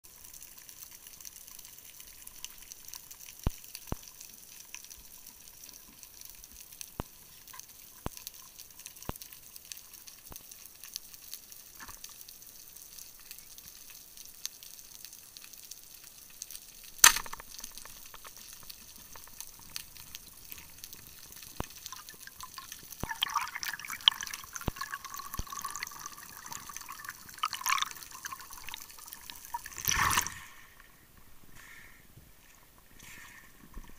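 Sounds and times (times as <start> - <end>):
loud sharp crack: 17.0 - 17.4
bubbling noise: 22.0 - 30.4
underwater hiss: 31.5 - 32.1.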